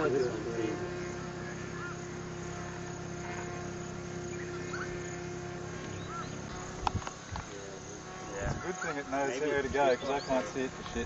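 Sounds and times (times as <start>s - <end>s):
distant drone engine buzzing: 0.0s - 11.0s.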